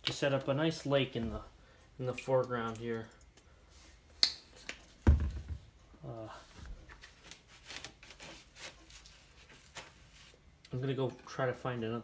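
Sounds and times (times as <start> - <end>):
loud dull thump: 5.0 - 5.7.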